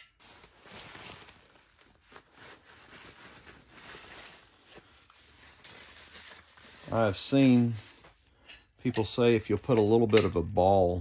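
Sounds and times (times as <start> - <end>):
paper towel rubbing and crinkling: 0.2 - 8.2.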